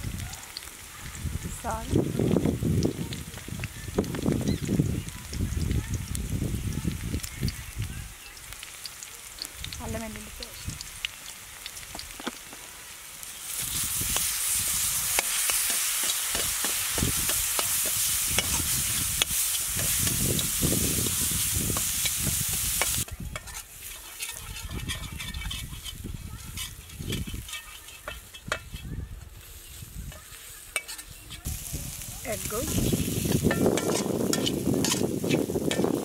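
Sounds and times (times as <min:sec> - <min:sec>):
food sizzling in hot oil: 0:00.0 - 0:36.0
metal spatula scraping a pan: 0:13.3 - 0:31.5, 0:32.7 - 0:36.0.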